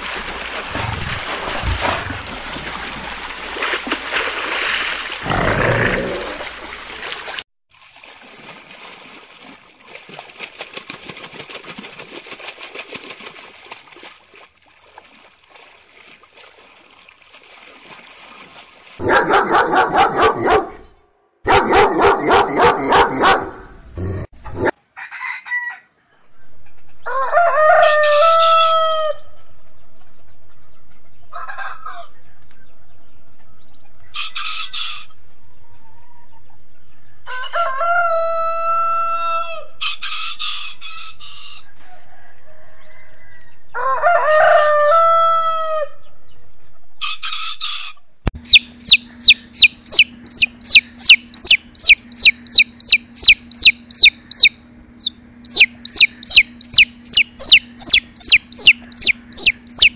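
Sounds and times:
rooster crowing: 24.9 - 26.4, 27.0 - 29.4, 31.3 - 32.4, 37.2 - 46.1.

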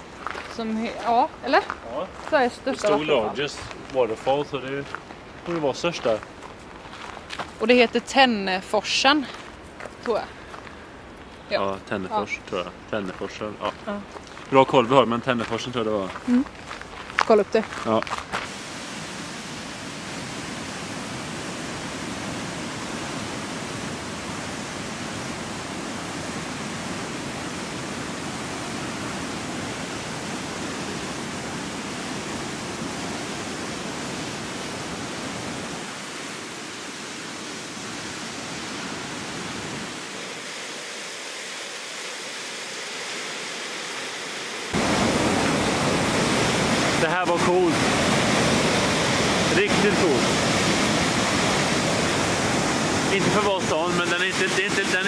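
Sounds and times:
waterfall roaring: 2.4 - 4.8, 11.5 - 13.9, 17.8 - 55.0.

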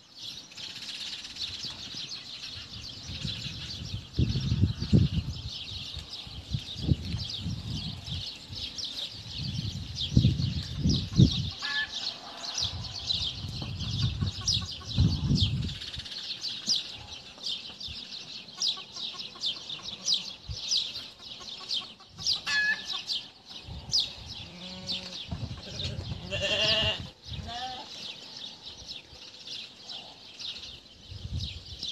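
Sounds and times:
birds chirping rapidly: 0.0 - 31.9
loud bird calls: 7.4 - 31.0.

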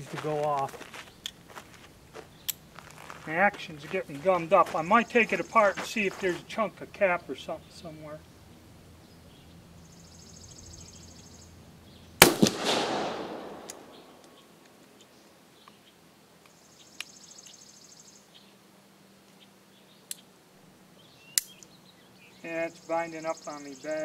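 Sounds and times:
revolver gunshot with echo: 12.2 - 14.2
light metallic clicks of revolver: 12.2 - 14.8, 21.3 - 21.7.

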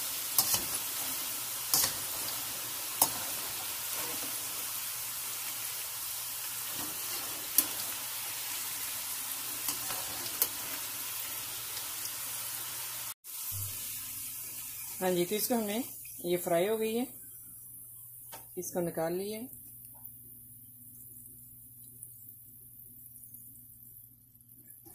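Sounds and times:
fries sizzling in hot oil: 0.0 - 24.9.

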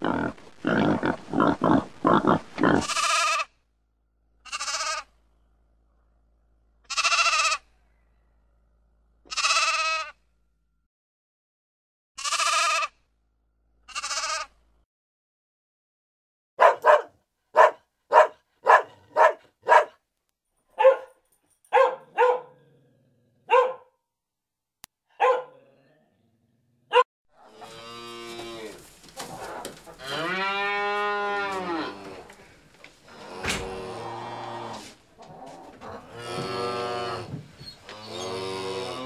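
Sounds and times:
sheep bleating: 0.0 - 3.5, 4.5 - 5.1, 6.9 - 7.6, 9.3 - 10.2, 12.2 - 12.9, 13.9 - 14.5
dog barking: 16.6 - 20.0, 20.8 - 22.6, 23.4 - 24.0, 25.1 - 25.6, 26.9 - 27.1
cattle mooing: 30.0 - 32.4, 33.1 - 39.0.

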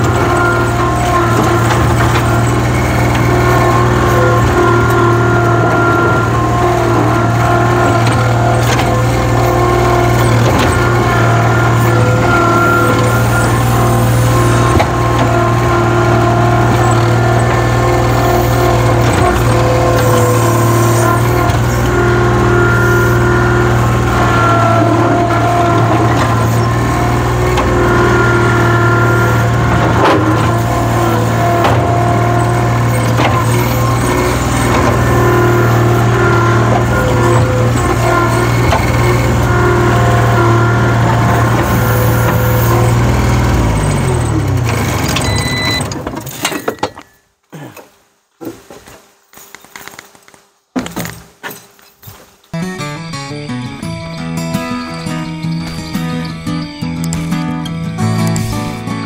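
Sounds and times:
diesel engine running: 0.0 - 46.5
short beep: 45.2 - 45.9.

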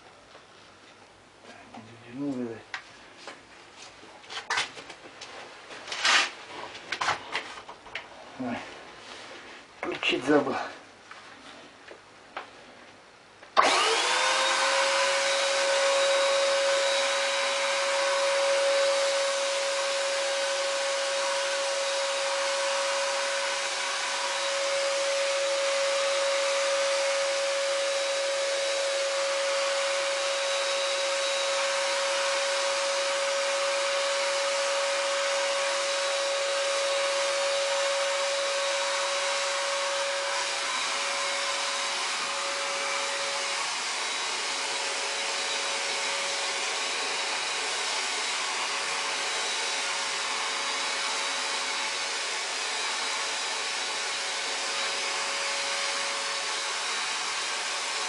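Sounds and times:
paint sprayer blower rushing air: 13.6 - 58.0
paint sprayer whine: 13.6 - 58.0.

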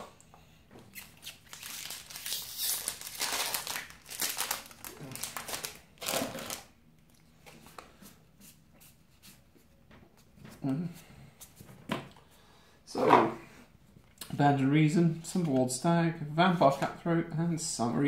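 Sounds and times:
foil wrapper crinkling and tearing: 1.0 - 6.7.

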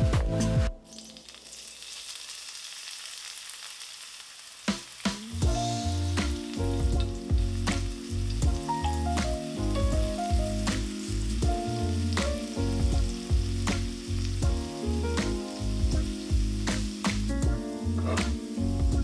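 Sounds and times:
background music: 0.0 - 1.2, 5.2 - 19.0
scallions sizzling in oil: 0.9 - 19.0.

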